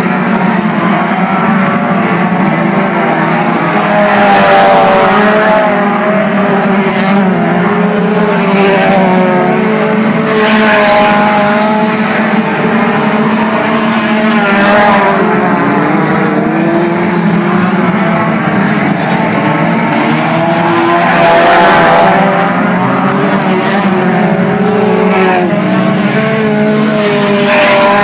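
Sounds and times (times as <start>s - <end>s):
race car engines: 0.0s - 28.0s.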